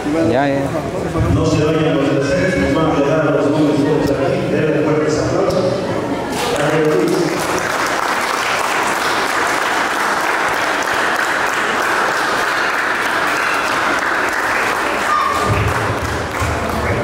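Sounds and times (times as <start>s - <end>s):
congregation applauding: 6.4s - 17.0s.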